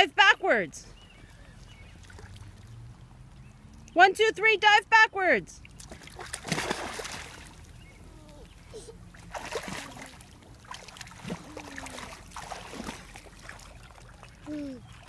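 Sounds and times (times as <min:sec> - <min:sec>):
small splashes of swimming: 0:00.9 - 0:04.0, 0:05.6 - 0:15.0
water sloshing: 0:00.9 - 0:04.0, 0:05.6 - 0:15.0
big splash into pool: 0:05.9 - 0:07.5, 0:10.7 - 0:13.6.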